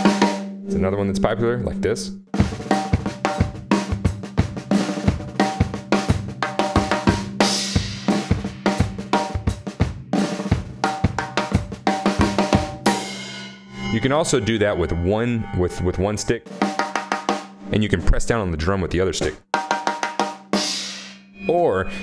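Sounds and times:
snare drum fill: 2.4 - 13.0
bass drum: 2.4 - 13.2
cymbal crash: 12.8 - 14.8, 20.6 - 21.3.

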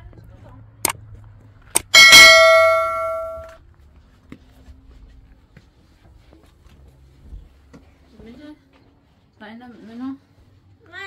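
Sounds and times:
bell-like metallic ring: 1.8 - 3.6
low hum: 1.8 - 3.6.

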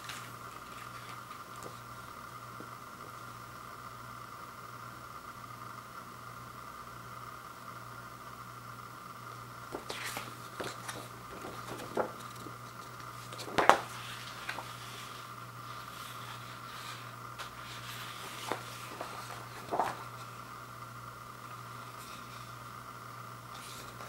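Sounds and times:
glossy paper rustling and crackling: 0.0 - 2.7, 9.7 - 20.6, 21.4 - 22.7, 23.5 - 24.0
steady hum: 0.0 - 24.0.

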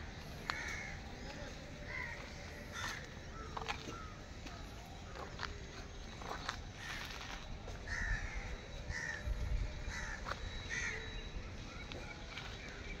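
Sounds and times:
crow cawing: 0.4 - 1.1, 1.9 - 4.2, 7.9 - 11.1
wind rumble on microphone: 7.1 - 10.9.

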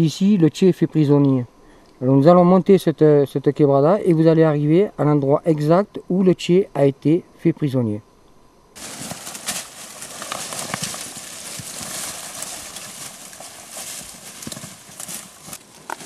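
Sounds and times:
dry brush crackling and rustling: 8.8 - 16.0
footsteps on loose ground: 8.8 - 16.0.

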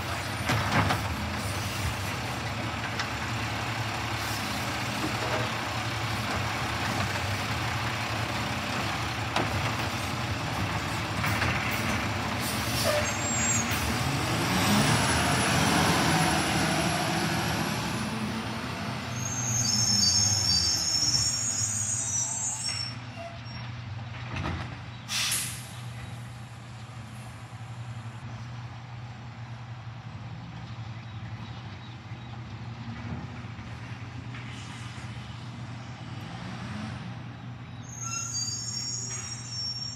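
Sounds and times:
air brake hisses: 25.1 - 25.8.

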